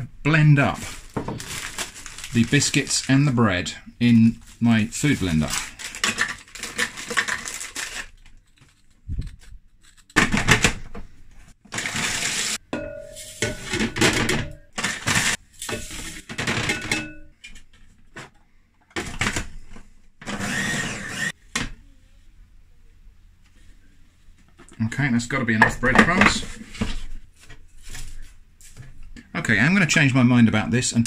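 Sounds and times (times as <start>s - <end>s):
biscuit packet rustling: 0.6s - 10.2s
food processor chopping: 20.2s - 21.3s.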